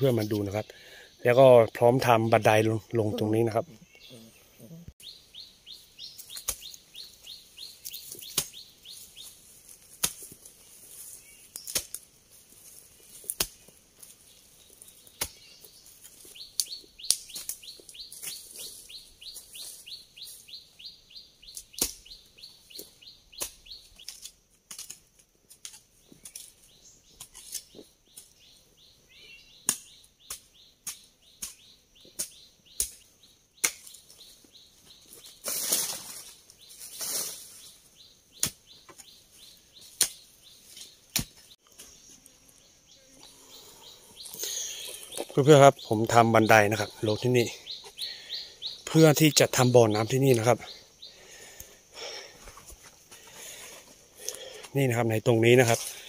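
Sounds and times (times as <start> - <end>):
hand tool striking ground: 6.1 - 19.6, 21.5 - 22.2, 22.8 - 28.4, 29.6 - 37.7, 38.3 - 42.0.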